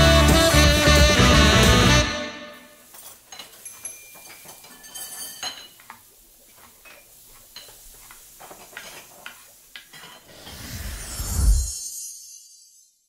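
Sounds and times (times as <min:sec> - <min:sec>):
light clicks and clinks: 0:02.9 - 0:10.3.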